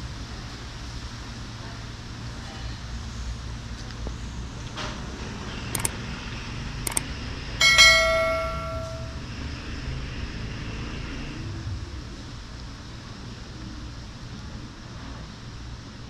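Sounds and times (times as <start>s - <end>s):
notification bell ding: 7.6s - 9.2s.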